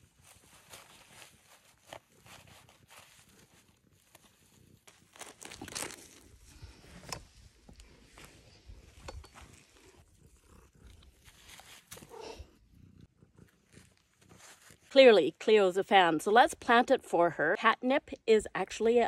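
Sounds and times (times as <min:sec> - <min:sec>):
plastic pot rustling and crinkling: 0:00.0 - 0:12.4, 0:13.4 - 0:15.0.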